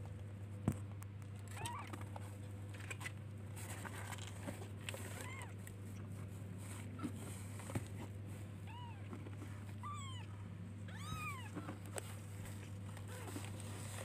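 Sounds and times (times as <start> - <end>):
steady low hum: 0.0 - 14.0
kitten mewing: 9.8 - 11.8.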